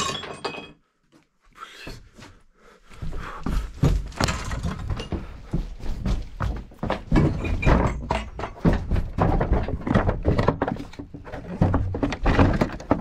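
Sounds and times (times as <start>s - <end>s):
thuds and knocks: 3.8s - 13.0s.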